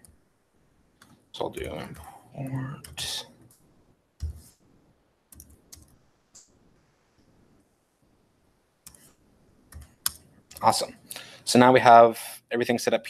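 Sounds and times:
faint keyboard keystrokes: 5.3 - 6.5.

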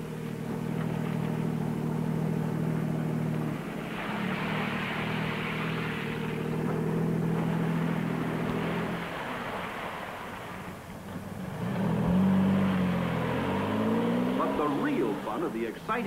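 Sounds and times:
car engine running: 0.0 - 16.0.

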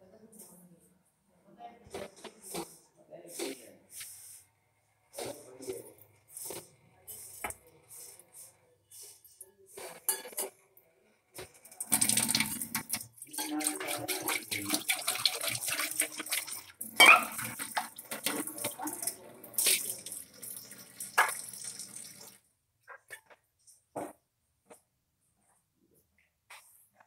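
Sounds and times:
steel dishes clinking: 10.0 - 10.5, 11.9 - 21.7
tap water splashing into sink: 11.8 - 22.4.

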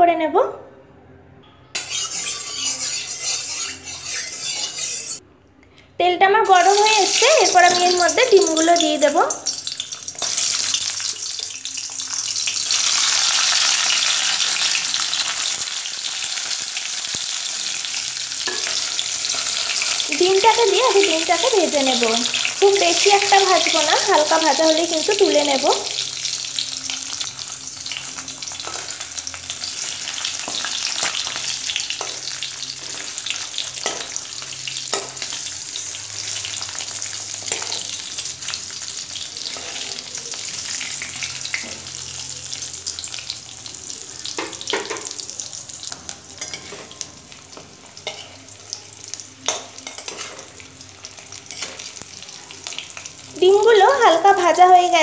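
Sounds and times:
eggs sizzling in hot oil: 1.8 - 5.2, 6.5 - 55.0
metal spatula scraping a pan: 1.8 - 5.2, 16.4 - 21.1, 26.2 - 38.2, 39.4 - 41.8, 46.4 - 48.4, 49.4 - 50.5, 51.5 - 51.9.

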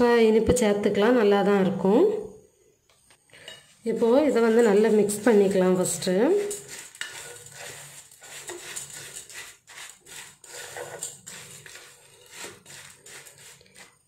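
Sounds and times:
spoon scraping in metal bowl: 3.3 - 14.0.

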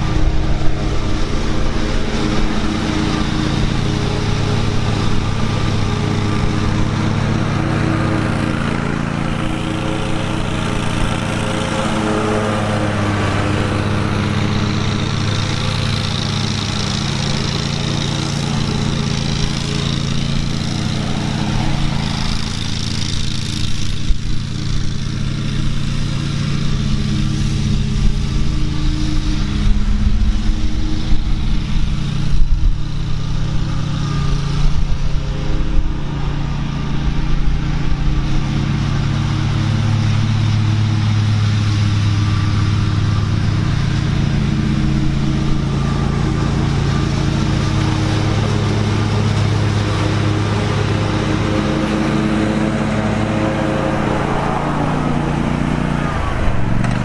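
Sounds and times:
mower engine running: 0.0 - 57.0.

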